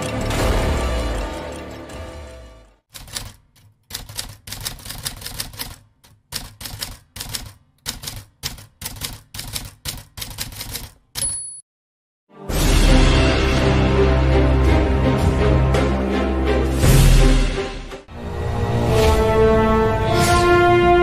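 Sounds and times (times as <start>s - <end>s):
music: 0.0s - 2.8s, 12.3s - 21.0s
typewriter key strikes: 3.0s - 11.6s
typewriter bell ding: 11.2s - 11.6s.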